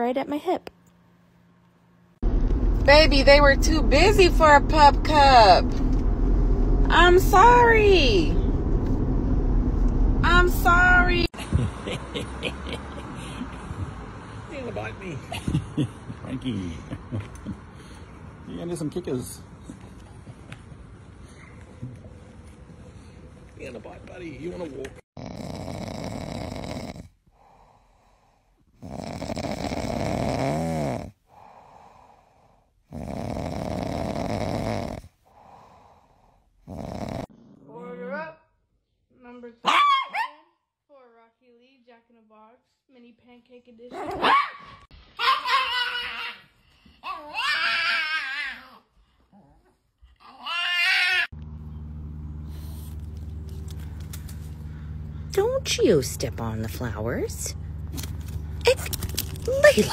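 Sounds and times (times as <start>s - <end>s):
steady low hum: 0.0s - 14.5s, 51.4s - 59.4s
dog snoring: 25.2s - 28.0s, 28.8s - 32.1s, 32.9s - 38.0s.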